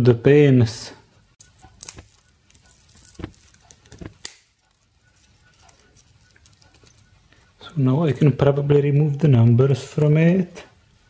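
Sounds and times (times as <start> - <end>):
small crackles: 1.4 - 11.0
side cutters snipping wires: 3.0 - 4.5.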